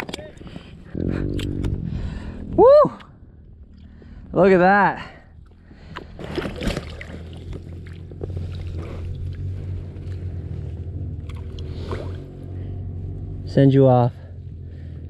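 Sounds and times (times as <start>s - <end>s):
steady low hum: 0.0s - 15.0s
water splashing: 5.4s - 9.6s.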